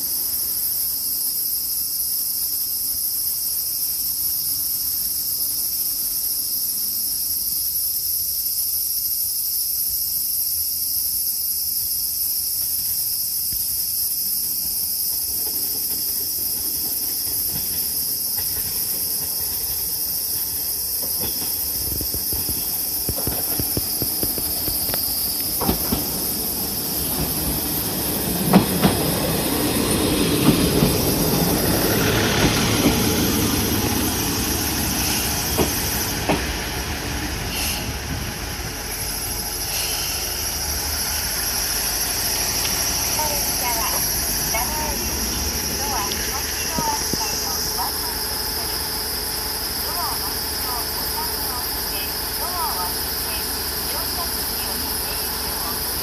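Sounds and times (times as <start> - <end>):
diesel railcar engine: 0.0 - 56.0
shrill insects: 0.0 - 56.0
train wheel noise: 11.7 - 56.0
wheels clacking over rail joints: 14.6 - 40.0.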